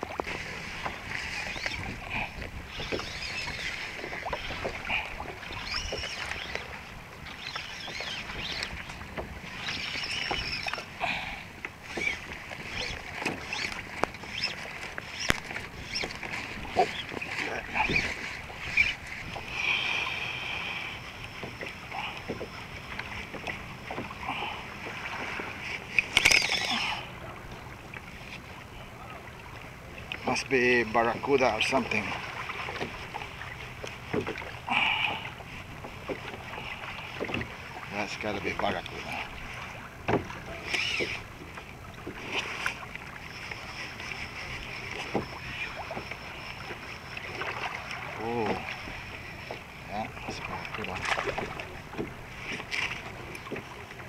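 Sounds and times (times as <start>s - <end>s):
water lapping against kayak hull: 0.0s - 54.0s
short high squeaks: 0.3s - 1.9s, 2.7s - 4.7s, 5.4s - 6.7s, 7.3s - 10.9s, 11.8s - 19.2s, 25.6s - 27.0s, 40.4s - 41.3s.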